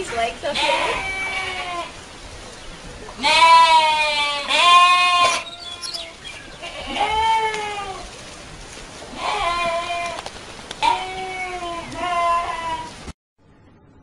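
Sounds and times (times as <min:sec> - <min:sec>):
goats bleating: 0:00.4 - 0:02.0, 0:03.1 - 0:08.1, 0:09.1 - 0:10.2, 0:10.8 - 0:13.0.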